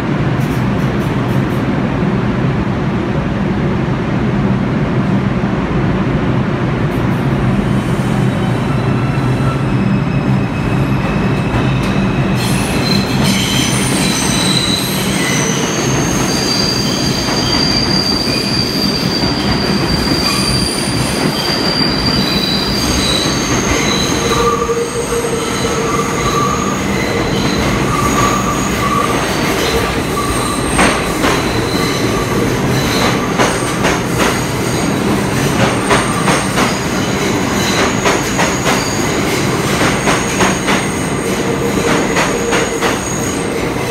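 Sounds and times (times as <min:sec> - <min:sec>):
train rumble: 0:00.0 - 0:43.9
train wheels squealing: 0:08.2 - 0:35.0, 0:35.7 - 0:43.9.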